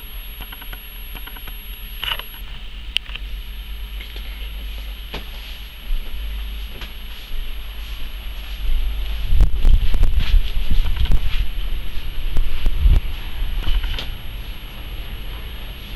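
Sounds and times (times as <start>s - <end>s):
sharp clicks: 0.4s - 2.4s
wind buffeting microphone: 8.2s - 14.6s.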